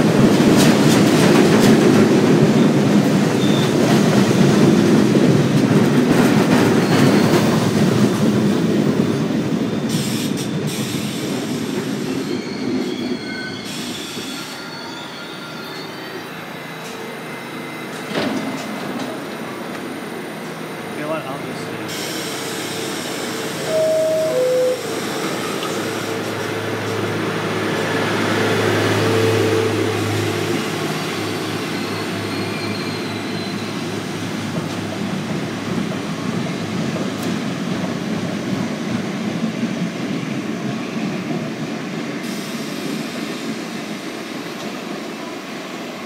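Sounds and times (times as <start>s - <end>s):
two-tone door chime: 23.7s - 24.9s.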